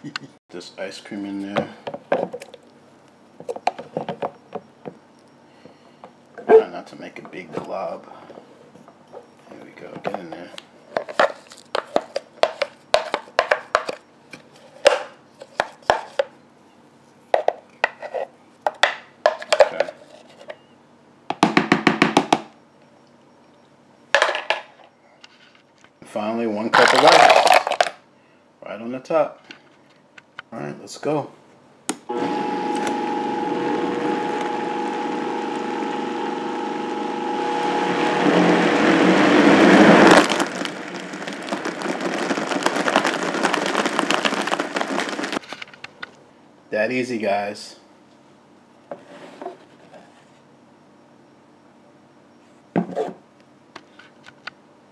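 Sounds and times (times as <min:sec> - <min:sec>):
ice crackling rattle in blender: 0:26.8 - 0:28.0, 0:32.1 - 0:45.7
blender motor whir: 0:32.1 - 0:45.4.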